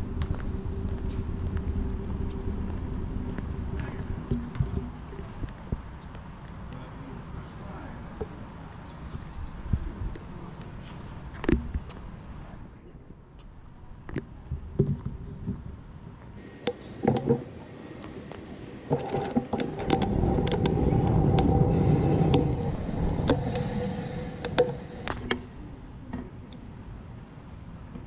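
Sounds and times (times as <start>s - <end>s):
vehicle passing with whine: 0.0s - 5.4s, 16.4s - 25.8s
sharp clicks and rattles: 16.4s - 25.4s.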